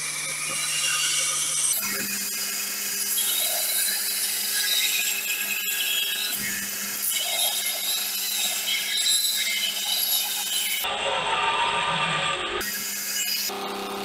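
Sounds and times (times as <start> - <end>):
motor hum: 0.0 - 4.5, 12.4 - 14.0
grinder on steel: 0.0 - 14.0.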